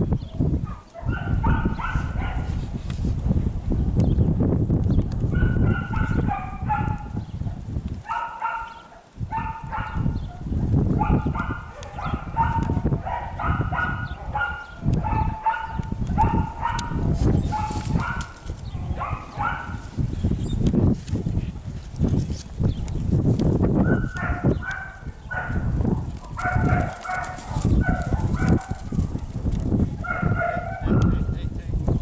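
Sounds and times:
wind on microphone: 0.0s - 32.0s
dog yipping: 5.4s - 7.0s, 8.1s - 10.4s, 11.0s - 18.4s, 19.0s - 19.8s, 23.8s - 29.2s, 30.0s - 31.2s.

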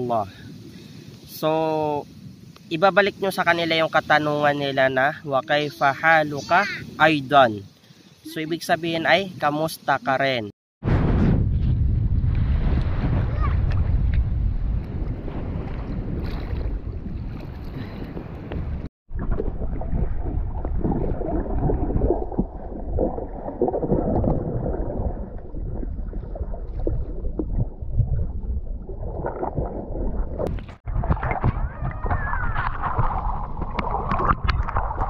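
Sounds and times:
underwater bubbling: 15.0s - 35.0s
water sloshing and splashing: 15.1s - 35.0s.

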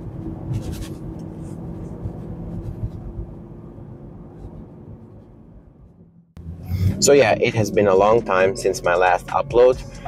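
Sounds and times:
car engine drone: 0.0s - 10.0s
road noise inside car: 0.0s - 10.0s.

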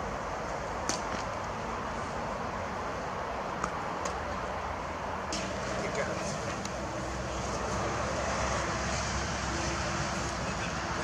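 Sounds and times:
outdoor background noise: 0.0s - 11.0s.

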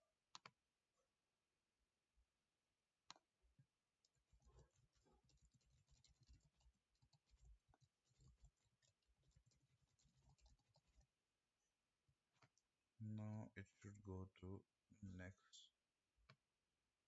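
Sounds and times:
faint keyboard typing: 3.1s - 11.2s.

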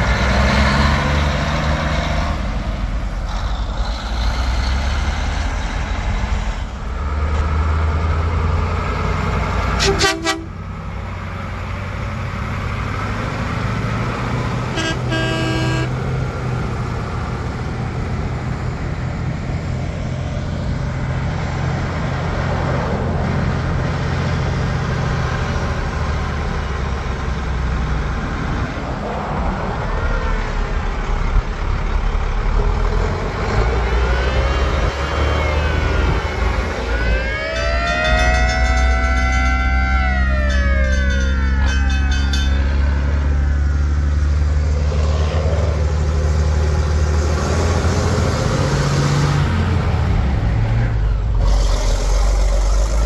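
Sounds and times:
diesel truck engines: 0.0s - 53.0s
air horn: 9.8s - 10.6s, 14.7s - 16.0s
siren winding up and down: 34.9s - 43.9s.

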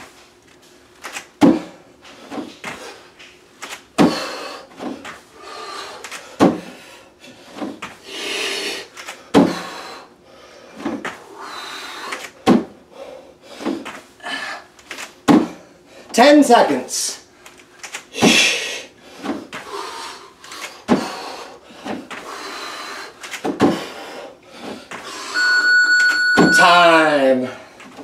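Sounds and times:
bare feet thumping on platform: 1.4s - 2.8s, 4.0s - 5.2s, 6.4s - 6.7s, 9.3s - 9.7s, 12.4s - 12.8s, 15.2s - 15.6s, 23.4s - 23.9s
hard breathing: 4.0s - 14.8s, 18.1s - 25.5s.

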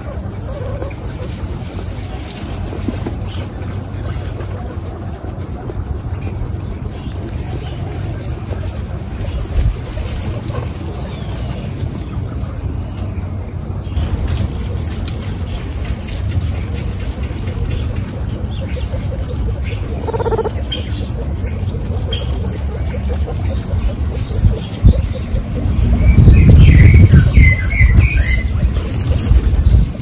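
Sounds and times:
guinea pigs crunching carrot: 0.0s - 30.0s
low rumble: 0.0s - 30.0s
high chirps: 20.0s - 20.9s.

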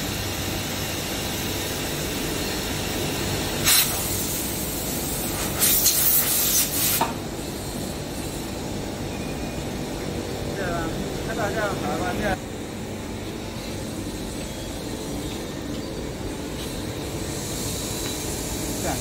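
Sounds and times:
factory background noise: 0.0s - 19.0s
air blow gun blasts: 3.6s - 7.2s.

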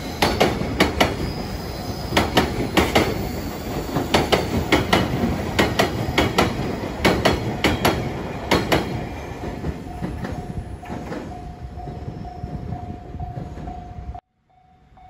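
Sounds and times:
train rumble: 0.0s - 14.2s
train wheels clacking on rail joints: 2.1s - 13.9s.

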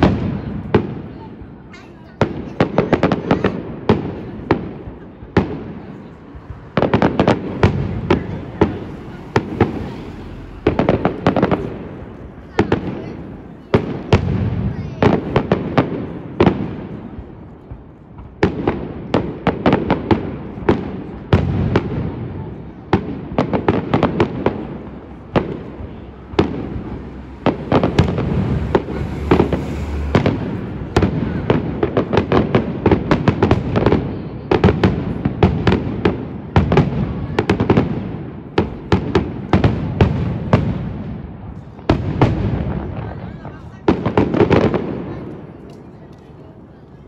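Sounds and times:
fireworks bangs: 0.0s - 47.0s
low rumbling noise: 24.4s - 33.7s.

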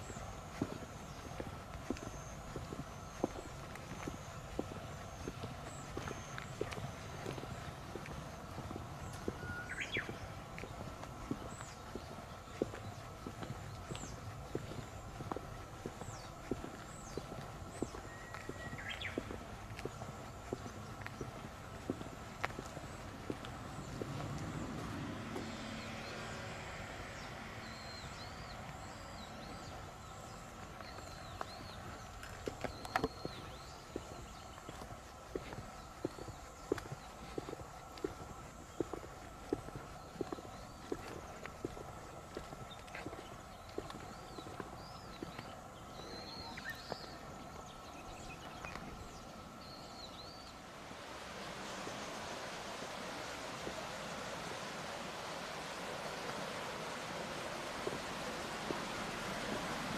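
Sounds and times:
bird chirping: 0.0s - 37.5s, 39.8s - 50.6s
footsteps on stone path: 0.0s - 59.9s
outdoor ambience: 0.0s - 59.9s
steady rushing noise: 50.1s - 59.9s.

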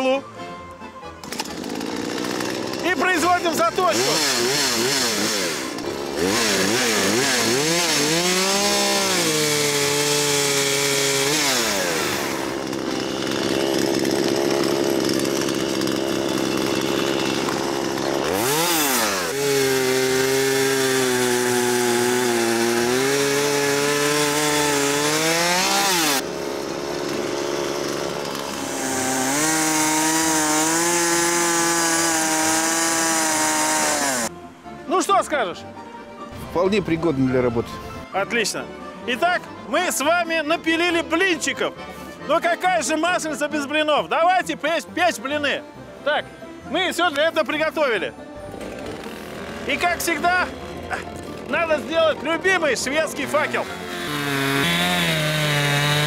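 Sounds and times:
chainsaw cutting log: 1.2s - 34.3s, 47.1s - 56.0s
chainsaw running hard: 1.2s - 34.3s, 47.1s - 56.0s.

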